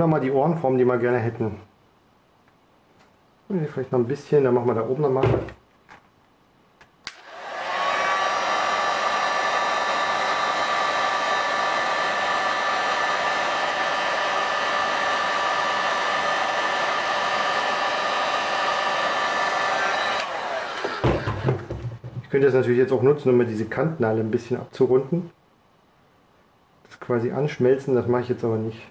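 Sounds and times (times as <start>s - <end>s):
heat gun switch click: 7.0s - 7.3s
heat gun fan blowing with hiss: 7.0s - 21.8s.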